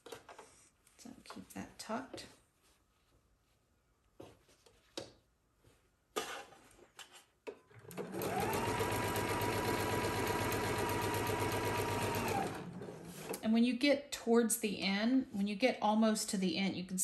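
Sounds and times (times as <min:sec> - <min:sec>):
electric sewing machine running: 0:07.8 - 0:13.1.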